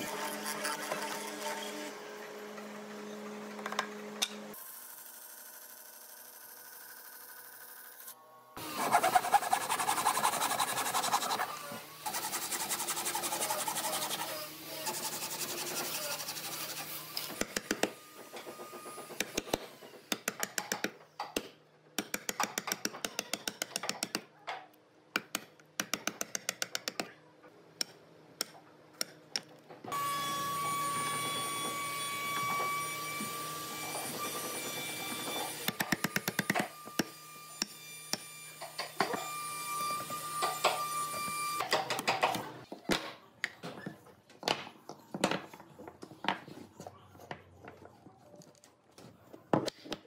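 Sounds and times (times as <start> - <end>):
hand saw cutting wood: 8.6 - 18.0.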